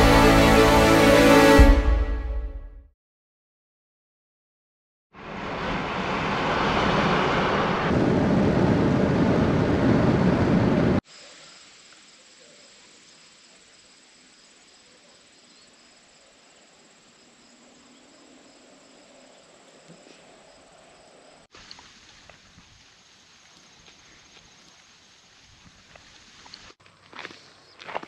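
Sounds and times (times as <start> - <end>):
road and wind noise from driving: 5.2 - 11.0
faint outdoor ambience: 11.0 - 28.0.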